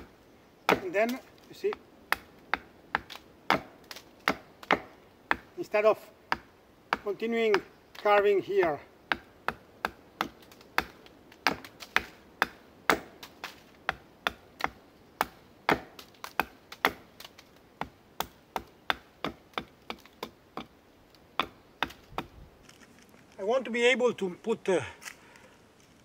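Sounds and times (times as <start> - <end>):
axe chopping wood: 0.7 - 5.5, 6.3 - 8.1, 9.1 - 20.7, 21.4 - 22.4.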